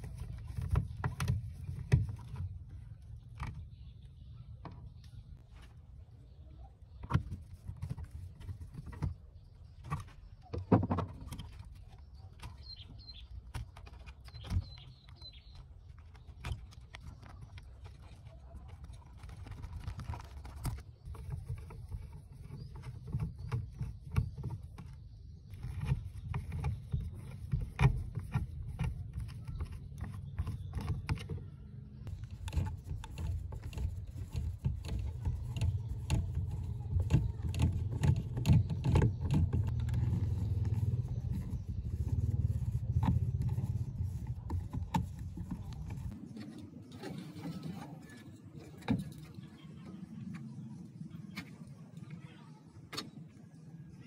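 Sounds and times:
low handling rumble: 11.1 - 54.0.

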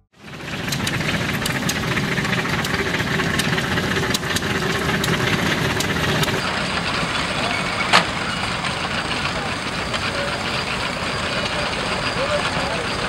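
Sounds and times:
small steam locomotive running: 0.2 - 13.0
vintage engines driving hay press: 0.2 - 13.0
sharp clicks: 0.6 - 6.4.

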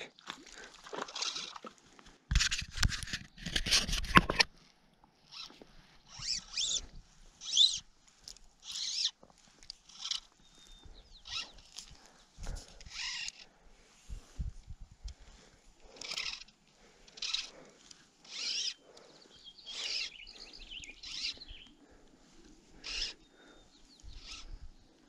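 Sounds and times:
fishing line handling rustle: 0.2 - 19.1, 21.0 - 25.0
fly line zipping through guides: 1.0 - 1.7, 5.3 - 7.9, 8.6 - 9.2, 9.8 - 10.4, 11.2 - 11.9, 12.5 - 13.5, 15.9 - 18.9, 19.6 - 21.6, 22.7 - 23.2, 24.0 - 24.7.

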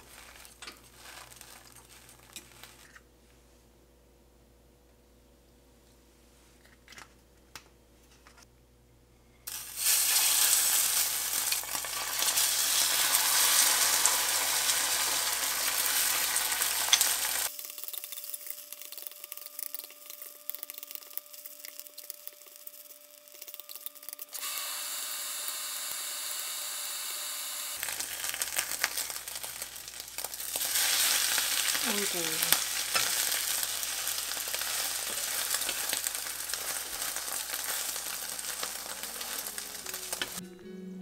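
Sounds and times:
spatula working in pan: 9.5 - 26.6, 27.8 - 40.4
food sizzling in hot oil: 9.5 - 40.4.

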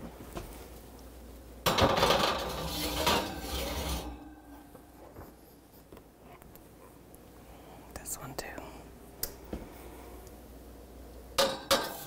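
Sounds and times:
baking dish scraping metal rack: 1.7 - 4.6, 11.4 - 12.0.

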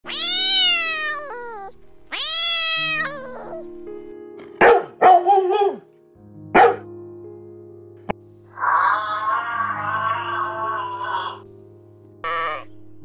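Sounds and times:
cat meowing: 0.0 - 3.7, 8.6 - 11.5
soft background music: 0.0 - 13.0
dog barking: 4.6 - 5.9, 6.5 - 6.9.

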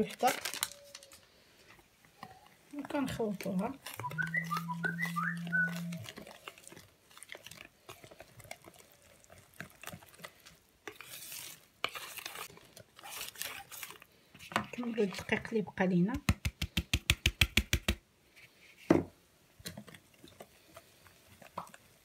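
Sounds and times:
whisk swishing strokes: 3.8 - 6.8, 8.0 - 13.9.

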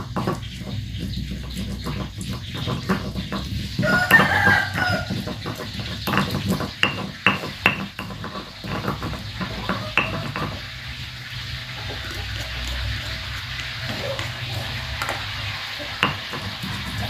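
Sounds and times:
stone pestle grinding in mortar: 0.0 - 11.1, 11.9 - 17.0
rooster crowing: 3.8 - 5.4.

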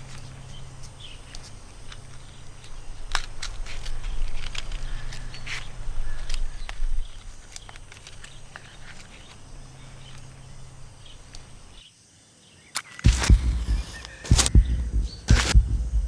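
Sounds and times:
low rumble: 13.1 - 16.0.

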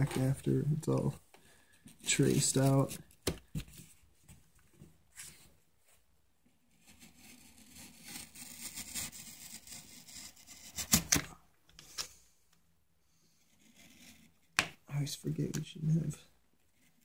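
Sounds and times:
knife cutting cardboard: 6.7 - 11.2, 13.5 - 14.7.

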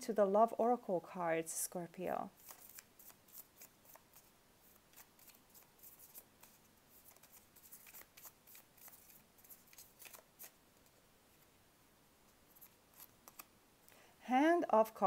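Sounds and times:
cards being shuffled: 2.4 - 11.5, 12.5 - 13.5.

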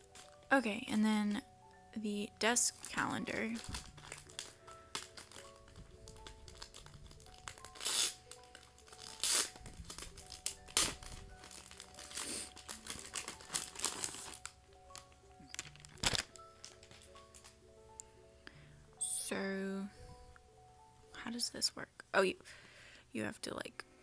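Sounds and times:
plastic wrapper crinkling and tearing: 0.0 - 0.4, 2.6 - 17.6
background music: 0.0 - 24.0.

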